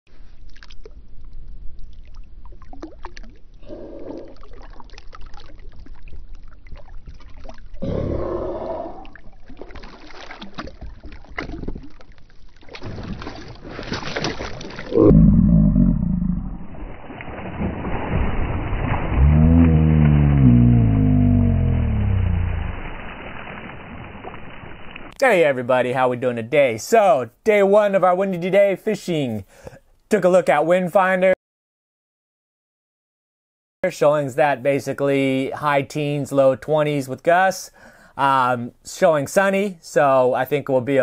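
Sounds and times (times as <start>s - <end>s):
water splashing and sloshing: 0.1s - 15.0s, 16.4s - 25.2s
loud low rumble: 14.9s - 16.9s, 18.9s - 23.3s.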